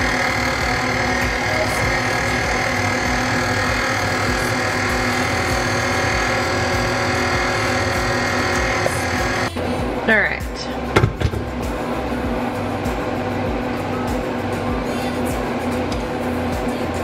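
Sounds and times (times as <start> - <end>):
stand mixer motor whir: 0.0 - 9.6.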